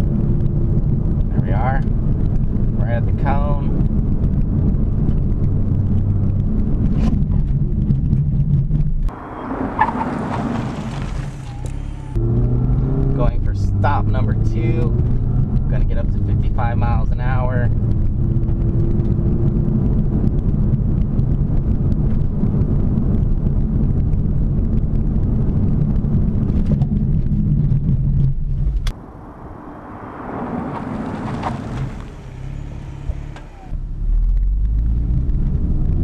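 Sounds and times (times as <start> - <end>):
car engine and road noise: 0.0 - 36.0.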